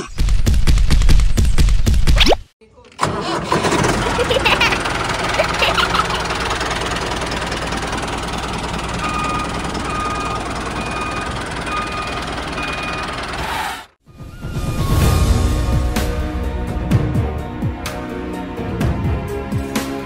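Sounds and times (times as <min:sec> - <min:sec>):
small tractor engine running: 0:02.9 - 0:13.6.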